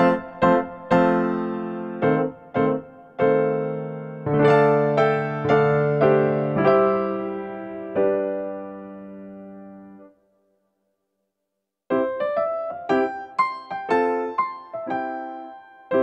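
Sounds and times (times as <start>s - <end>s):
gentle keyboard melody: 0.0s - 10.2s, 11.9s - 16.0s.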